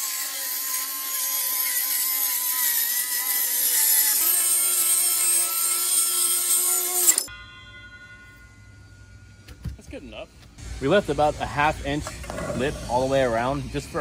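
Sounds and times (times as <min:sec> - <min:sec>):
circular saw cutting plywood: 0:00.0 - 0:07.3.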